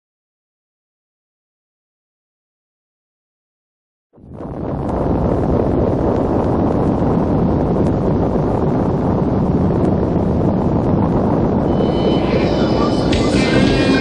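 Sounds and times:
low rushing noise: 4.3s - 14.0s.

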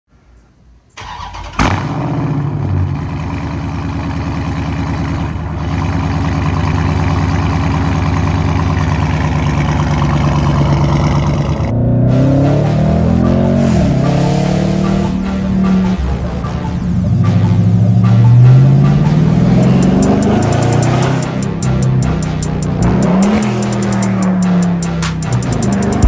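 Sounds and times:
car engine starting: 0.9s - 26.0s
car engine idling: 1.0s - 26.0s
music: 12.0s - 26.0s.

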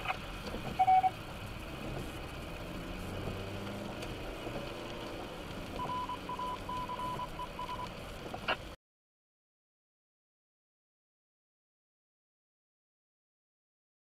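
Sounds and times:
car driving on wet road: 0.0s - 8.8s.

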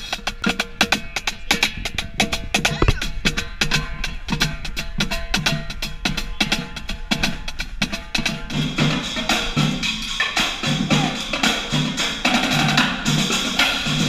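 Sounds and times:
drumline stick and rim hits: 0.0s - 12.8s
low drum hits: 2.6s - 3.5s.

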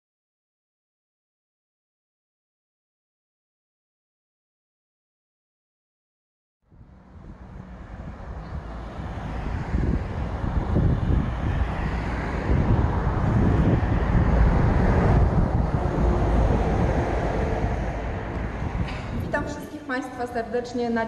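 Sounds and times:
low rumble of road traffic: 6.6s - 21.0s.

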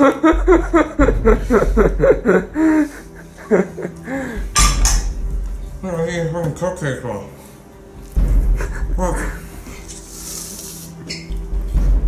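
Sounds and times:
man laughing: 0.0s - 4.4s, 8.6s - 9.5s.

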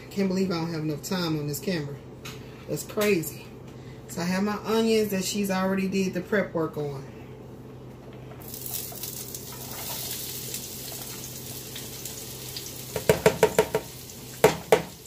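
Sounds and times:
onions sizzling in skillet: 8.4s - 15.0s
container knocking on pan: 12.9s - 15.0s.

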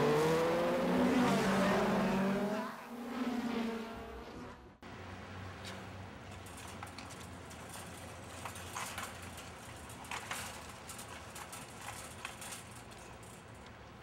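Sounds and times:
cart knocks and clatters: 5.6s - 14.0s
shopping cart rattling on concrete: 6.3s - 14.0s.

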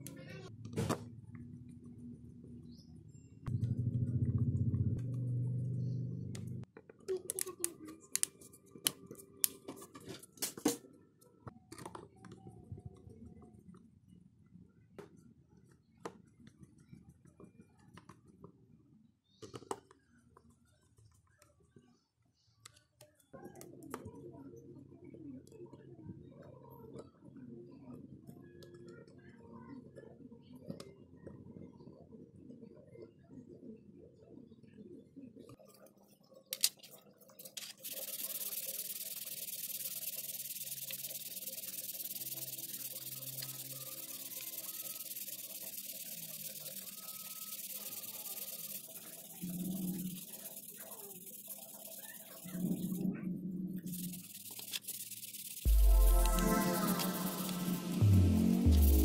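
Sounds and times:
low background hum: 0.0s - 10.1s.

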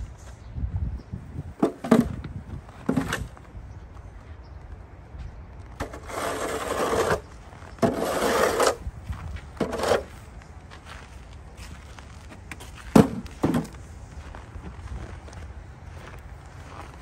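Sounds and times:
snow shovel scraping paving: 5.8s - 10.3s.

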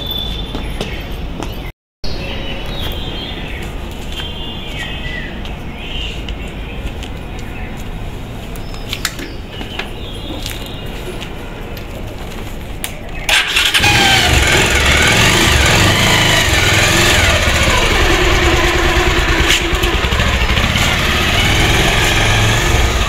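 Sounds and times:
motorcycle engine running: 13.3s - 23.0s.

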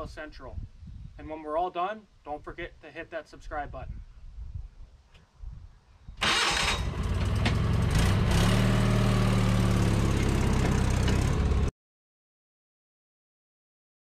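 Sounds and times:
small petrol engine running: 6.2s - 11.7s.

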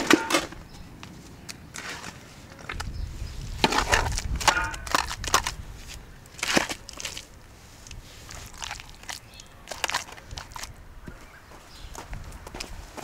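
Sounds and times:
shovel scraping wet mud: 1.7s - 2.3s, 3.6s - 10.7s.

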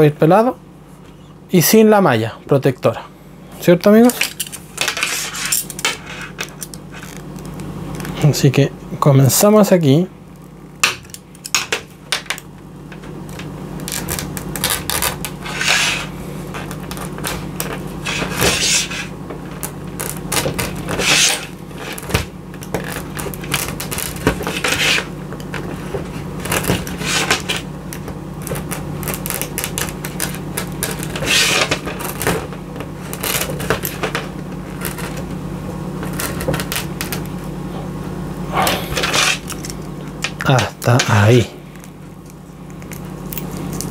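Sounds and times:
steady low hum: 0.0s - 43.9s
blade scraping cable jacket: 3.9s - 8.2s, 13.2s - 27.7s, 28.4s - 35.4s, 36.0s - 37.4s, 38.6s - 43.9s.

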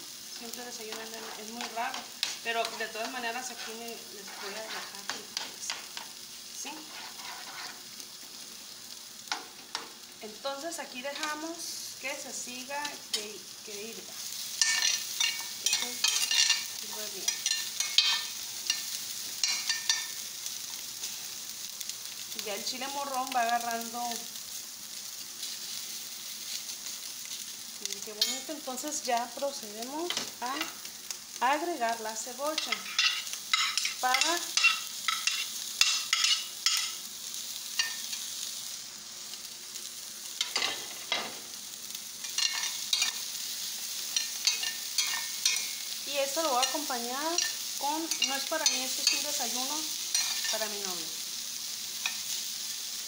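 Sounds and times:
food sizzling in oil: 0.0s - 53.0s
utensil scraping pan: 0.9s - 6.0s, 6.7s - 7.9s
stirring scrapes in skillet: 0.9s - 8.4s, 42.2s - 46.0s, 46.6s - 50.7s.

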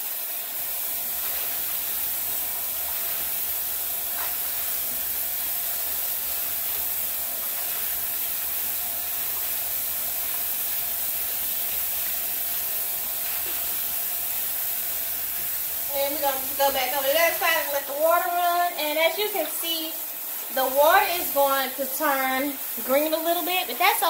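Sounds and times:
tap water pouring into sink: 0.0s - 17.5s.

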